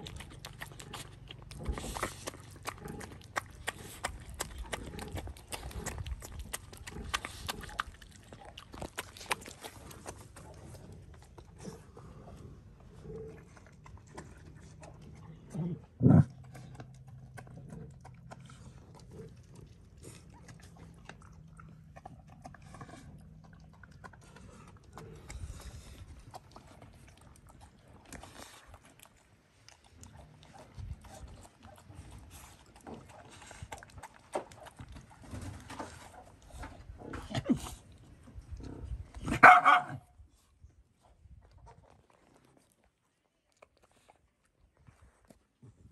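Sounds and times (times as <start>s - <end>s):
dog low pitched vocalizing: 0.0s - 29.1s.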